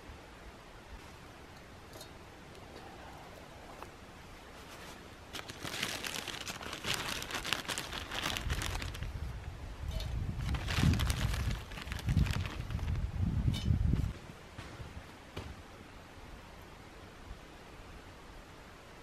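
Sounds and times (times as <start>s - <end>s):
plastic bag crinkling: 4.6s - 9.2s, 10.4s - 13.0s.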